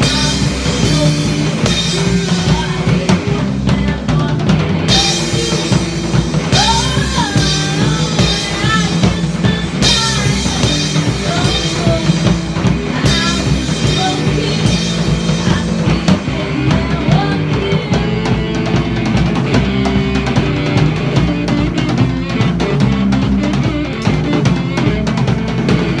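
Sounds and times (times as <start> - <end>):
woman singing into a microphone: 0.0 - 18.8
live rock band playing: 0.0 - 26.0.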